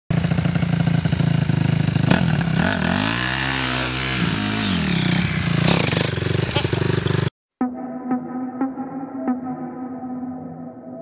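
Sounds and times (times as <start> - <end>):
dirt bike engine revving: 0.1 - 7.3.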